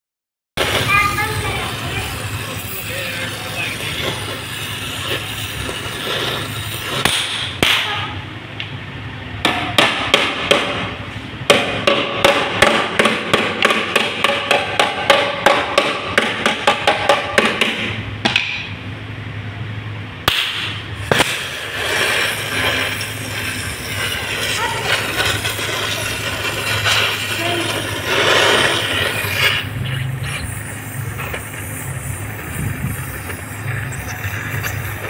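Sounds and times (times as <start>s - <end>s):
gas torch flame hissing: 0.6s - 8.1s, 20.3s - 35.0s
hammer ringing on sheet metal: 9.4s - 10.9s, 11.5s - 18.7s.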